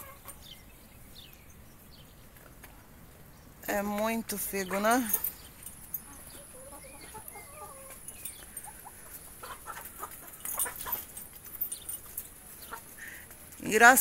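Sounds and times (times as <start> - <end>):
hens clucking: 0.0 - 0.5, 6.0 - 11.3, 12.4 - 13.4
rustling leaves and branches: 0.0 - 14.0.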